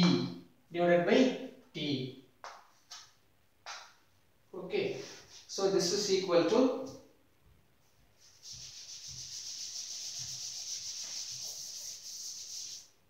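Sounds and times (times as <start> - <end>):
eraser rubbing a chalkboard: 8.2 - 13.0.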